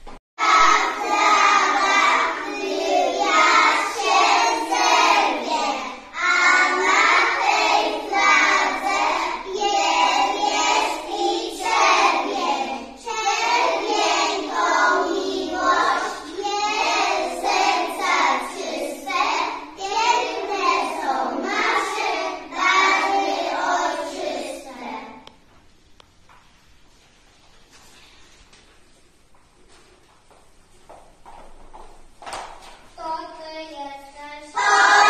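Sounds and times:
children singing in chorus: 0.4 - 25.2, 34.5 - 35.0.

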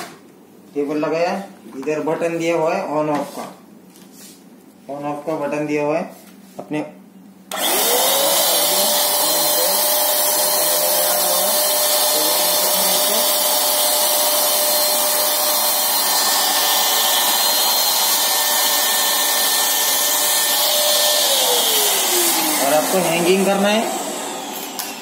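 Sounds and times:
blower motor running: 7.5 - 25.0.

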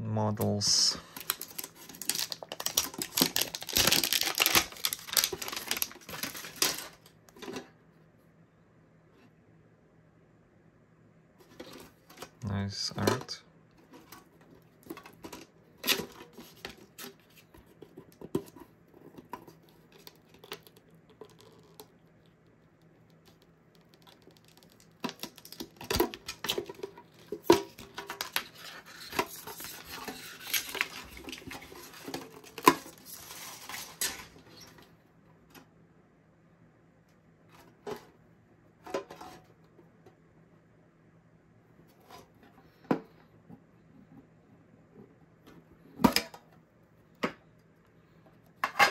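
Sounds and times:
plastic wrap crinkling: 1.0 - 7.0, 23.9 - 34.7.

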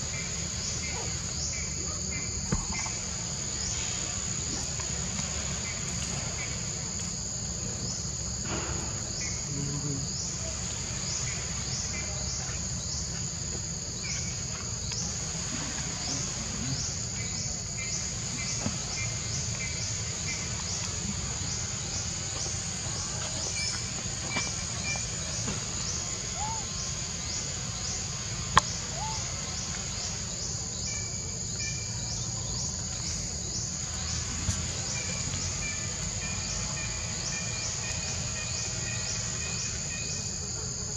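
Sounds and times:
high-pitched insect chorus: 0.0 - 40.9
bird chirps: 0.2 - 3.1.

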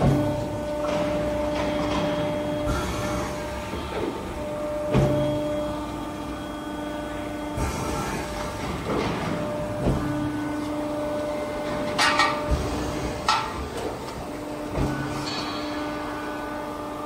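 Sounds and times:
workshop machinery humming: 0.0 - 17.0
sharp metallic knocks: 14.7 - 16.0.

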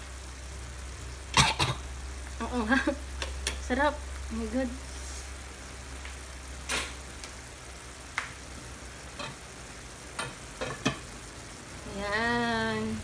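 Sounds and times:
stew simmering in a pan: 0.0 - 13.0
sharp pops and crackles: 3.1 - 3.7, 5.9 - 9.4.

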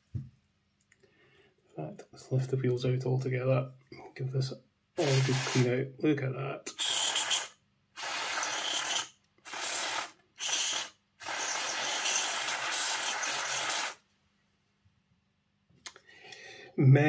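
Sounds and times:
aerosol spray hissing: 5.0 - 5.7, 6.7 - 14.0.

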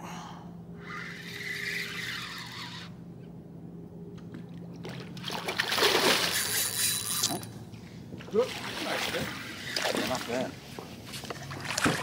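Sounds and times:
steady low hum: 0.0 - 12.0
fish splashing in water: 4.8 - 6.7.

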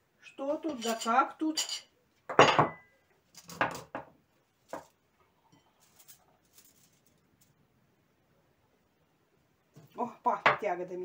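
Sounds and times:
ceramic plate clinking on table: 0.8 - 2.9.

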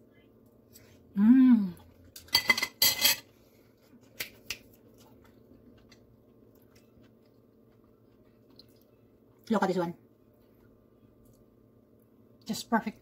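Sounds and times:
person humming: 1.2 - 1.8
cutlery scraping ceramic plate: 2.3 - 3.3.

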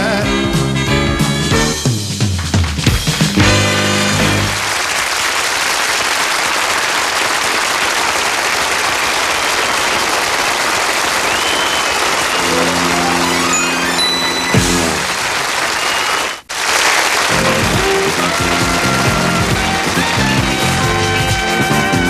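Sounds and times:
music: 0.0 - 4.6, 12.3 - 15.2, 17.3 - 22.0
audience applauding: 2.2 - 22.0
whistle: 11.2 - 14.8, 15.6 - 16.4.

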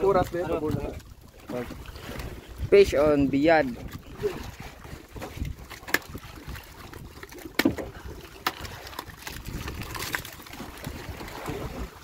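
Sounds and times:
water washing: 0.0 - 12.0
knocks against boat hull: 7.5 - 7.9.

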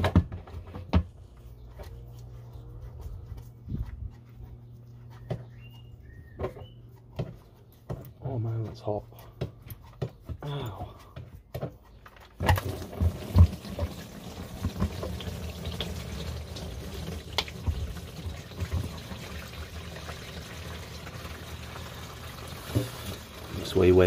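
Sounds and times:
oil pouring in a stream: 12.5 - 24.0.

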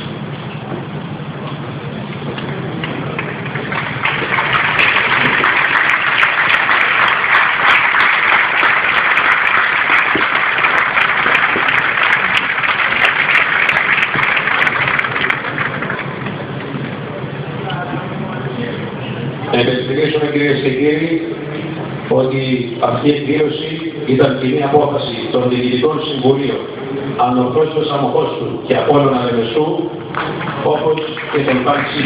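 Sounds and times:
low crowd murmur: 0.0 - 32.0
crowd applauding: 2.5 - 16.8, 30.0 - 32.0.

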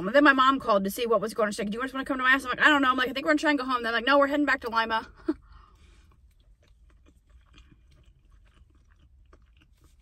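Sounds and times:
soft chewing mouth clicks: 5.8 - 10.0.

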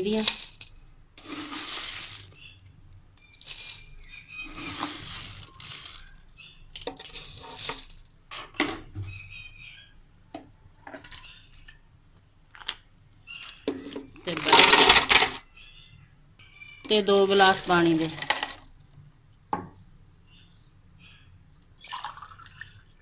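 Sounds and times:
sugar granules pouring: 0.0 - 2.5, 3.3 - 6.3.

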